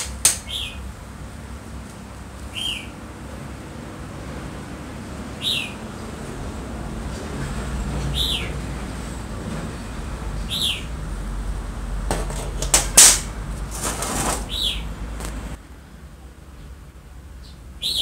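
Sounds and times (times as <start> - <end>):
pliers clattering on workbench: 12.1 - 13.3.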